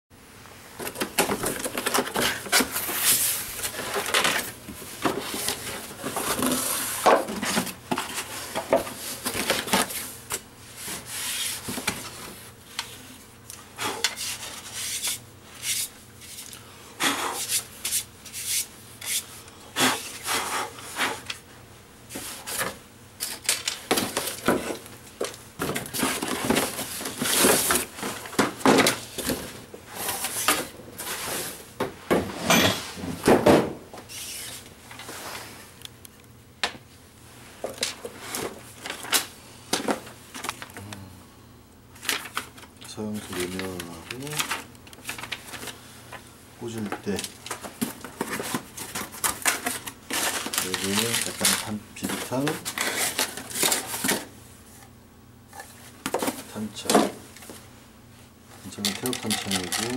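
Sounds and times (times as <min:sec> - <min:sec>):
packing inserts rustling and knocking: 0:00.8 - 0:12.2, 0:22.1 - 0:31.2, 0:42.0 - 0:54.4.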